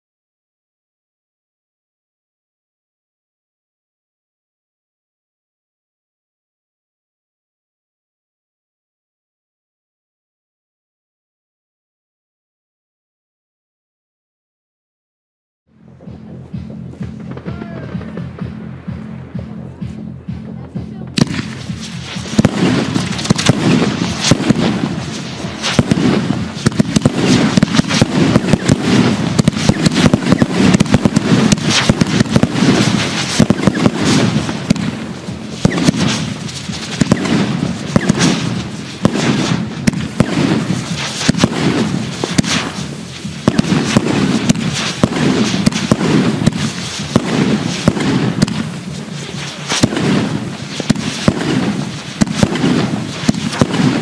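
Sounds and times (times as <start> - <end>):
firework cake shots and bursts: 21.2 - 54.0.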